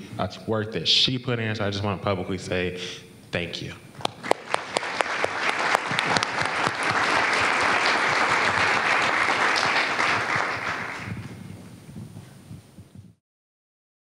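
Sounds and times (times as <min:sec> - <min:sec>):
audience applauding: 0:04.0 - 0:11.4.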